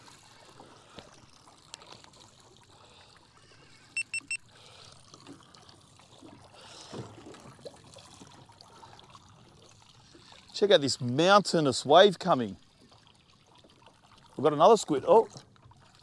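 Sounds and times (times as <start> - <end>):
water lapping against boat hull: 0.0 - 16.0
high-pitched electronic beeps: 4.0 - 4.4.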